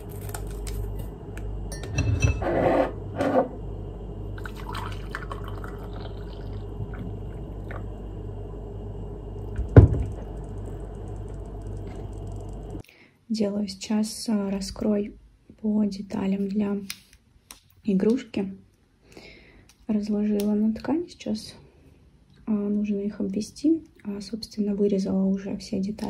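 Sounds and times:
water pouring into a mug: 4.4s - 8.0s.

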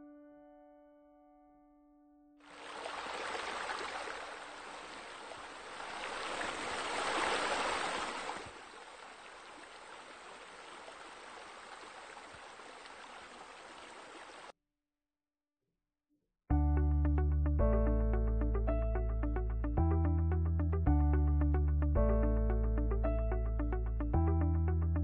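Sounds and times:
spa water spilling over: 2.5s - 14.4s
water jets splashing into pool: 2.5s - 14.5s.

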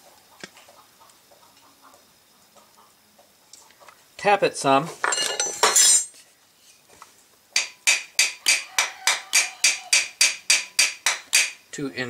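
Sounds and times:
hammer tapping on metal: 7.6s - 11.6s.

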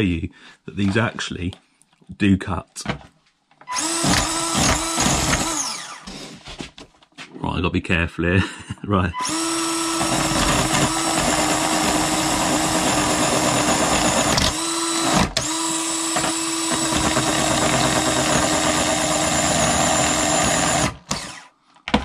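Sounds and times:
electric motor whining: 3.7s - 6.2s, 9.2s - 21.5s.

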